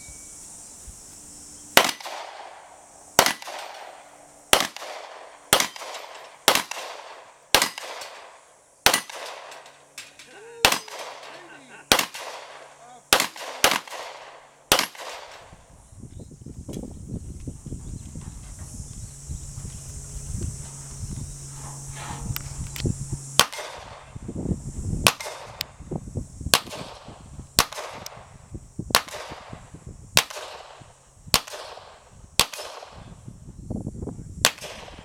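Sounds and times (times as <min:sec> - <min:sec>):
gunshots: 0:01.8 - 0:02.6, 0:03.2 - 0:09.7, 0:10.6 - 0:15.4, 0:31.4 - 0:33.0.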